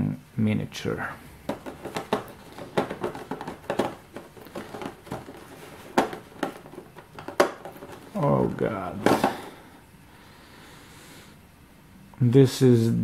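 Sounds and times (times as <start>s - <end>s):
plastic tray crackling and clicking: 1.5s - 8.2s.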